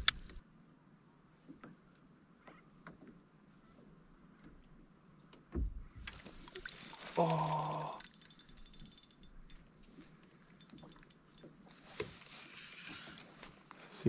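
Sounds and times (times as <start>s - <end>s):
fishing reel clicking: 6.4s - 10.0s, 10.6s - 11.5s.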